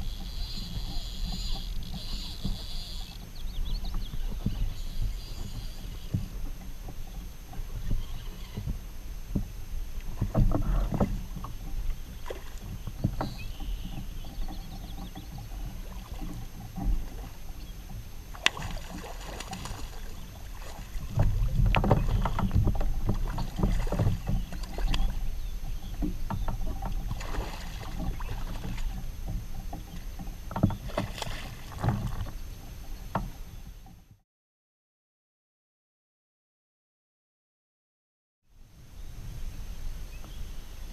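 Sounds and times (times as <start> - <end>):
wind rumble on microphone: 0.0 - 33.9, 38.6 - 40.9
knocks and clicks on kayak hull: 8.6 - 32.4
fish splashing and thrashing: 10.0 - 32.4.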